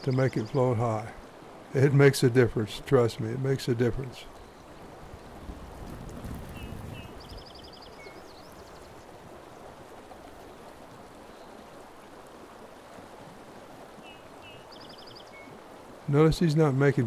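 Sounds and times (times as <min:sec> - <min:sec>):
songbird singing: 0:00.0 - 0:01.2, 0:03.9 - 0:05.5, 0:06.4 - 0:09.7, 0:10.4 - 0:11.9, 0:13.9 - 0:17.0
river running over rocks: 0:00.0 - 0:17.0.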